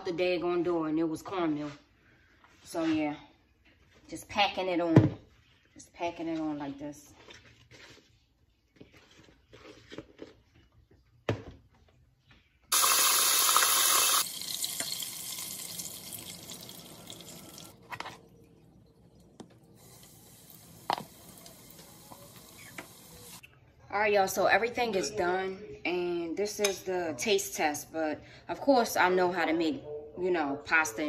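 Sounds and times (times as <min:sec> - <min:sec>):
wet batter handling: 0:07.1 - 0:11.2
deep-frying sizzle in oil: 0:12.7 - 0:17.6.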